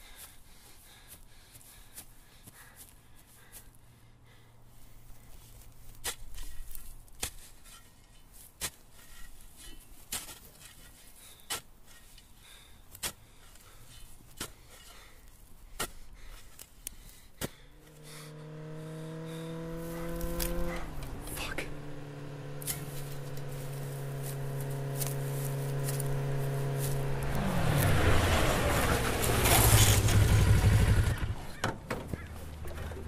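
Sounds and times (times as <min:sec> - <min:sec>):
shovel chopping hard ground: 0:05.9 - 0:12.2, 0:12.9 - 0:15.0, 0:15.7 - 0:16.8, 0:17.4 - 0:18.6, 0:19.4 - 0:21.6, 0:22.6 - 0:28.0
low multi-tone drone: 0:17.8 - 0:28.4.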